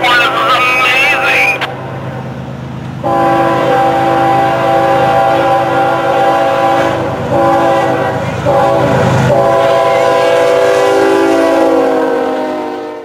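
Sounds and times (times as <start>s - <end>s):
train rumbling: 0.0s - 13.0s
locomotive air horn blasts: 3.0s - 13.0s.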